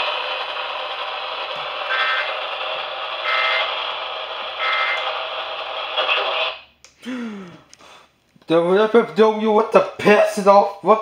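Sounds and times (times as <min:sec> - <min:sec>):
radio static hiss: 0:00.0 - 0:06.7
digital data tone bursts: 0:01.8 - 0:02.5, 0:03.1 - 0:03.9, 0:04.5 - 0:05.2.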